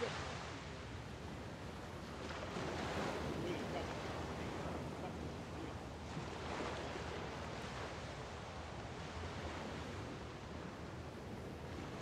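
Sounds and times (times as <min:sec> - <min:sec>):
small waves washing onto shore: 0:00.0 - 0:12.0.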